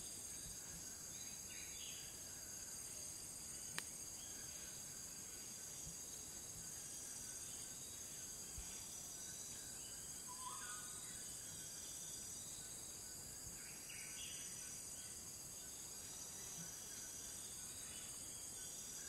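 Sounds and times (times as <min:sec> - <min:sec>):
steady high hiss: 0:00.0 - 0:19.0
faint bird chirps: 0:06.9 - 0:19.0.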